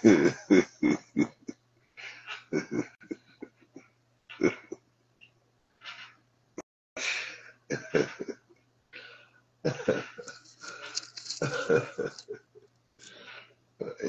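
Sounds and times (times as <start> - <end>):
man laughing hard: 0.0 - 1.5, 2.5 - 3.2, 7.7 - 8.4, 9.7 - 12.5.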